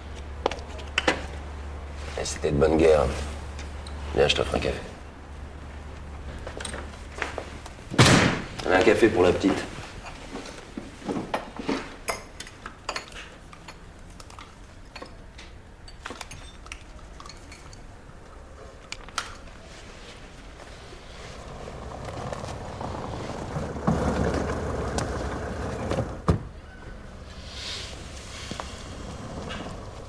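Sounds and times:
cups and cutlery clinking: 0:12.9 - 0:13.8
rumbling hiss: 0:20.3 - 0:26.4, 0:27.0 - 0:30.0.

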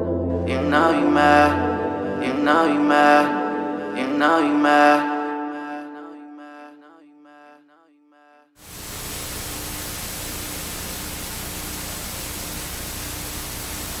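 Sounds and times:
tv static hiss: 0:08.6 - 0:14.0.

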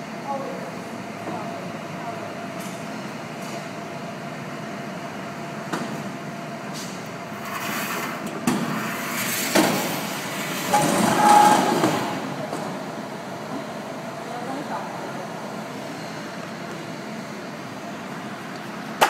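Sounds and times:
bottling machine din: 0:09.6 - 0:12.3.

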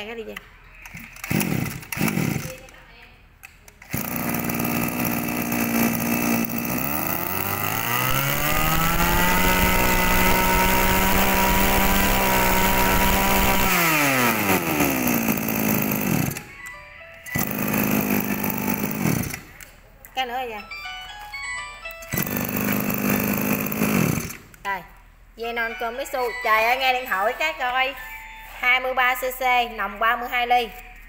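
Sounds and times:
brush cutter engine revving: 0:01.1 - 0:02.7, 0:03.8 - 0:16.5, 0:17.3 - 0:19.6, 0:22.1 - 0:24.6.

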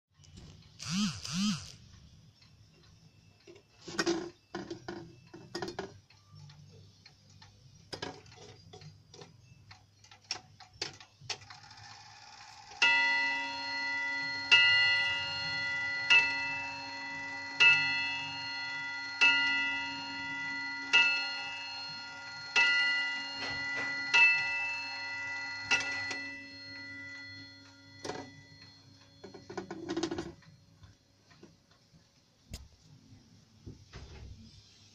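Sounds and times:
pendulum clock ticking: 0:00.6 - 0:33.0
clock striking chimes: 0:12.1 - 0:30.4.

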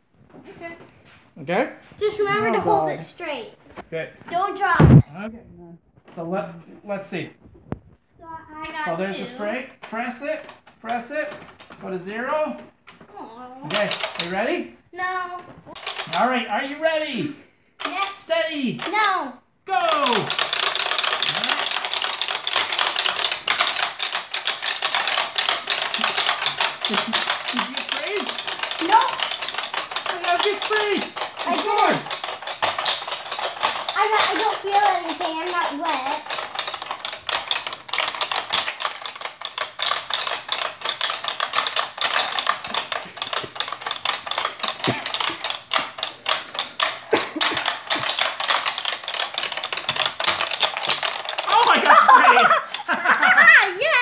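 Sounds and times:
plastic buttons clicking rapidly: 0:08.8 - 0:11.9, 0:13.6 - 0:14.5, 0:15.2 - 0:16.6, 0:17.8 - 0:18.2, 0:18.8 - 0:54.0.

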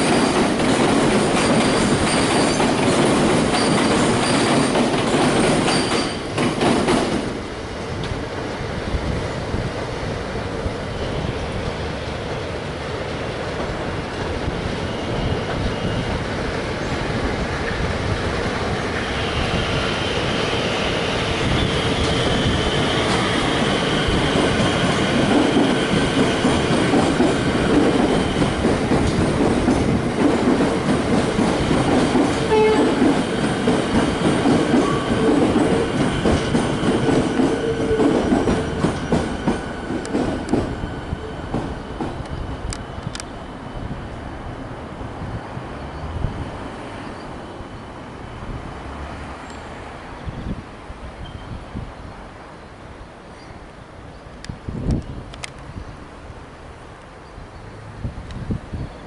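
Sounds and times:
train wheels clicking: 0:00.0 - 0:07.4, 0:21.9 - 0:43.4
train rumble: 0:00.0 - 0:59.0.

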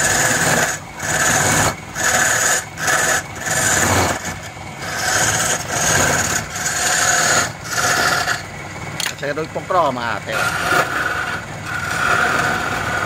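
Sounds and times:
chisel scraping spinning wood: 0:00.0 - 0:13.0
wood lathe running: 0:00.0 - 0:13.0.

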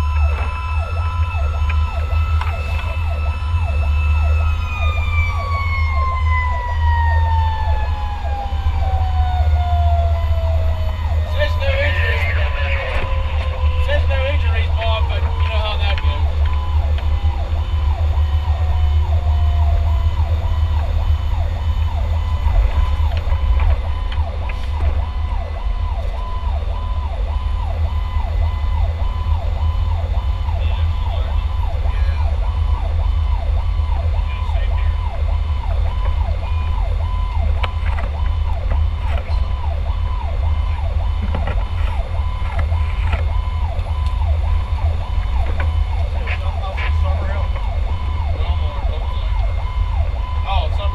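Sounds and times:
fire truck siren yelping: 0:00.0 - 0:50.9
low drone of engine and road: 0:00.0 - 0:50.9.

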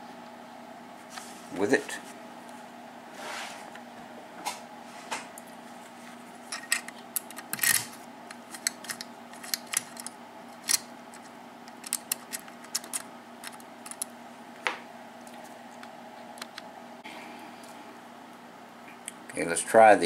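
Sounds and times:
lock pin tumblers clicking: 0:06.5 - 0:14.1.

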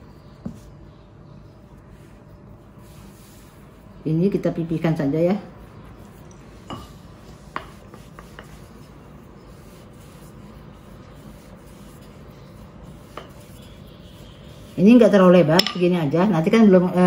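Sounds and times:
rolling pin rubbing on dough: 0:00.0 - 0:17.0
hands pressing dough: 0:05.7 - 0:16.0.

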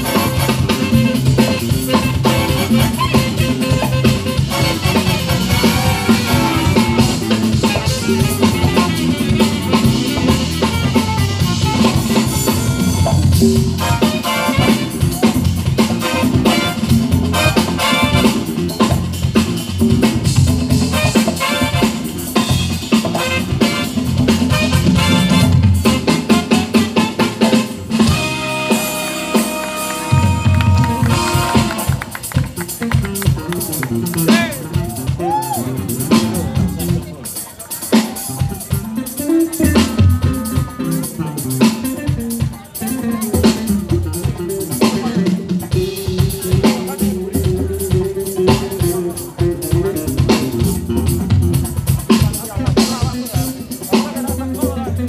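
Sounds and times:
electric bass lines: 0:00.0 - 0:37.2
congas: 0:00.0 - 0:55.0
drum kit beats: 0:00.0 - 0:55.0
electric keyboard: 0:00.0 - 0:55.0.

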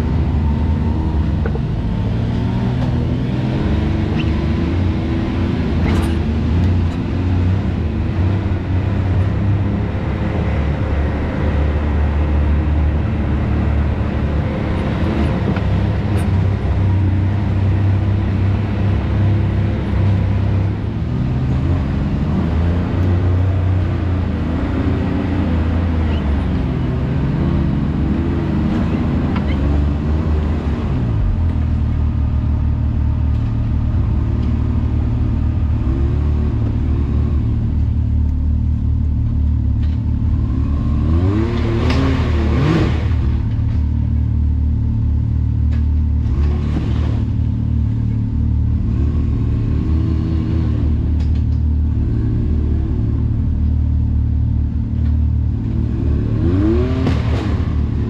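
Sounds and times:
off-road vehicle engine running: 0:00.0 - 0:58.0.

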